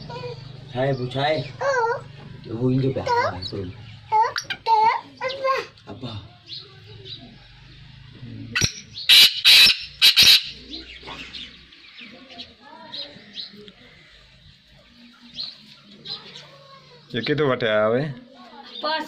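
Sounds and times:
loud sharp quail calls: 0:08.5 - 0:11.6
quail chirping: 0:08.5 - 0:13.6.

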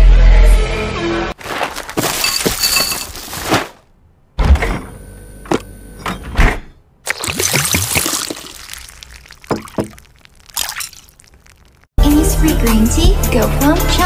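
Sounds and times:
cereal poured into a bowl: 0:07.1 - 0:11.8.

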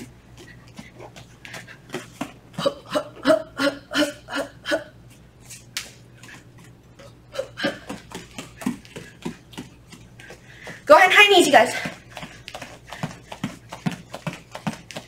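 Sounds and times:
barefoot footwork on mats: 0:00.0 - 0:03.4, 0:05.0 - 0:15.0
person breathing: 0:10.1 - 0:10.9.

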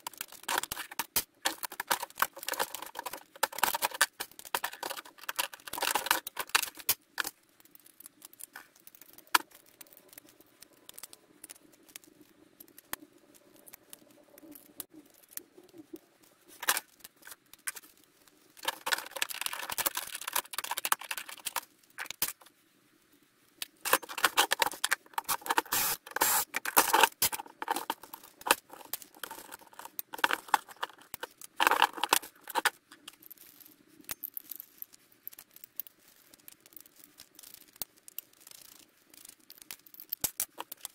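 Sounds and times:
small parts rattling on wood: 0:00.0 - 0:13.0, 0:16.5 - 0:22.5, 0:23.6 - 0:40.9.

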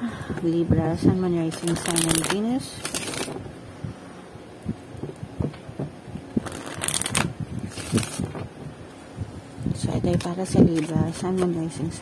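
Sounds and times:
cards being shuffled: 0:01.5 - 0:03.4, 0:06.4 - 0:08.5, 0:10.2 - 0:11.5.

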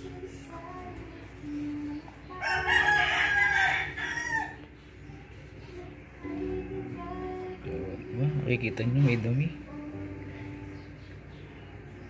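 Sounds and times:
rooster crowing: 0:02.3 - 0:04.7.

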